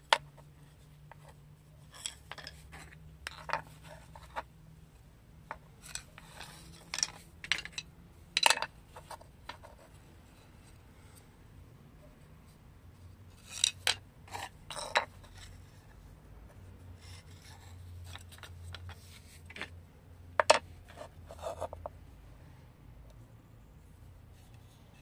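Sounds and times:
wooden spoons clacking on tile: 1.8 - 4.4, 5.8 - 9.6, 13.4 - 15.5, 20.4 - 20.6.

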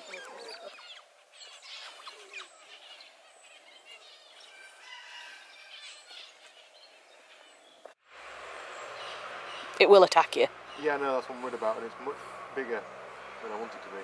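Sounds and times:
otters chirping and squeaking: 0.0 - 4.5.

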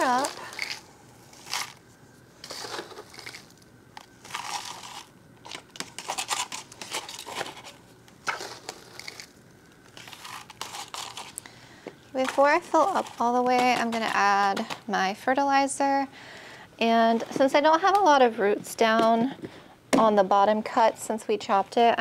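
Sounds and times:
potting mix crackling and rustling: 0.0 - 16.0.

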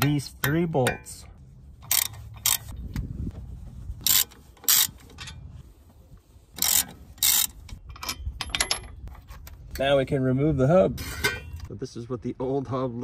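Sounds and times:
ratchet wrench clicking: 1.8 - 2.7, 4.0 - 5.0, 6.6 - 8.8.

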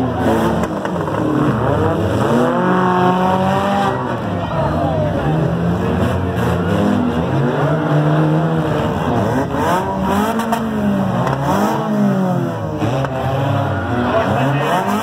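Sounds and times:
car engines revving: 0.0 - 15.0.

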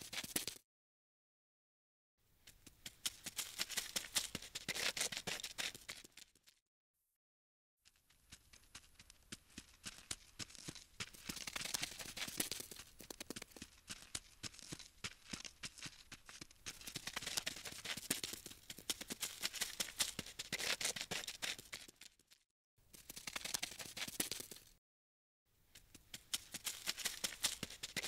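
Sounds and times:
dry insect clicks and scratches: 3.1 - 6.0, 10.6 - 15.9, 16.7 - 22.2, 23.0 - 24.7, 26.1 - 28.0.

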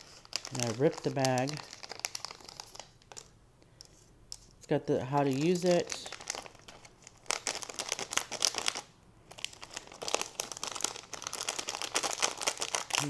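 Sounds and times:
plastic bag crinkling: 0.0 - 3.3, 4.6 - 13.0.

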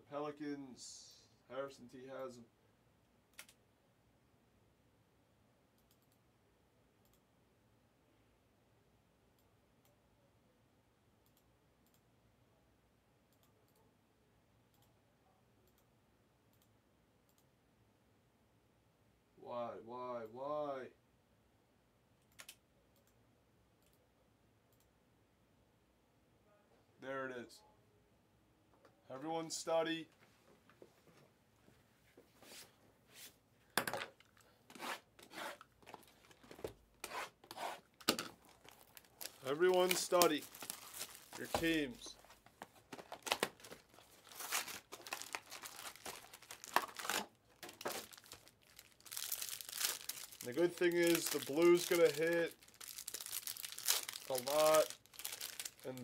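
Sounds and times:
computer mouse clicks: 5.8 - 6.2
knife tearing plastic wrap: 43.0 - 56.0.

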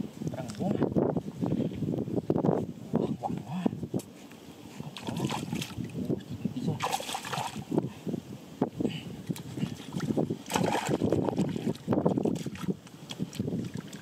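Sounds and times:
muddy water splashing: 4.7 - 6.0, 6.7 - 7.8, 9.3 - 14.0.

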